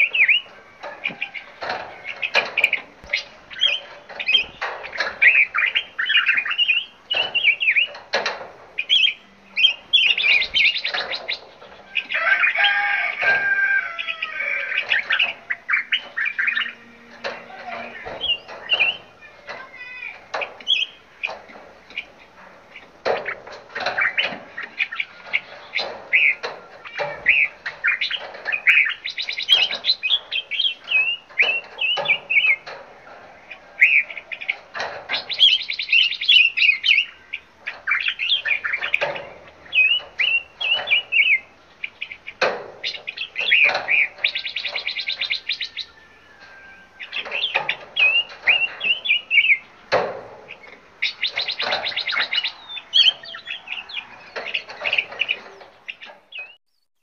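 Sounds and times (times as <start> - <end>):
songbirds chirping and singing: 0.0 - 57.0
rapid bird trilling: 33.4 - 49.9, 50.5 - 56.6.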